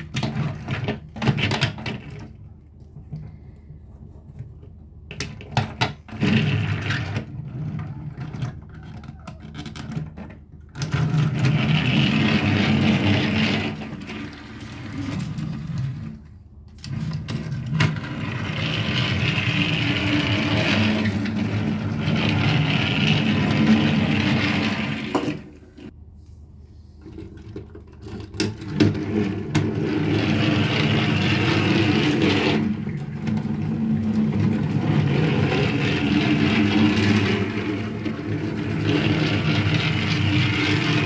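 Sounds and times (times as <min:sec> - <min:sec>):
toy train motor whirring: 0:18.2 - 0:25.1, 0:34.8 - 0:41.0.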